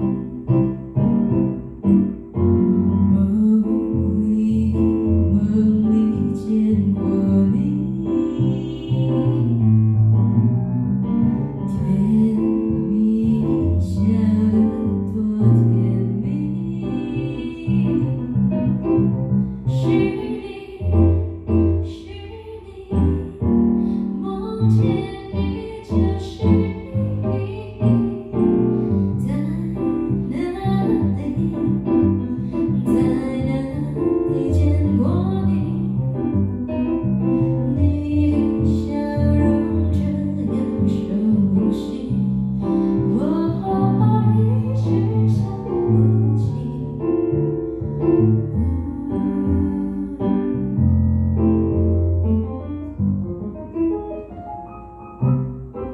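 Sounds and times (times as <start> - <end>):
stage keyboard: 0.0 - 55.9
woman singing slow song: 3.1 - 9.6, 11.7 - 18.4, 19.8 - 28.3, 29.2 - 31.9, 32.5 - 36.0, 37.7 - 47.4, 48.5 - 50.8.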